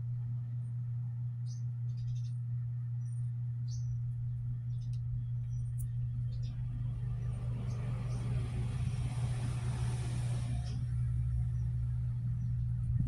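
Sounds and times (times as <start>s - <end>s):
steady low hum: 0.0s - 13.0s
road vehicle passing: 6.6s - 12.0s.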